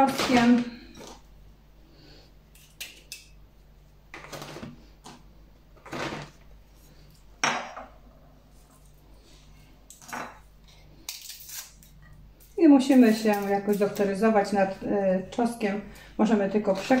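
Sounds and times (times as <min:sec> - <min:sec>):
plastic bag rustling: 0:05.8 - 0:07.0.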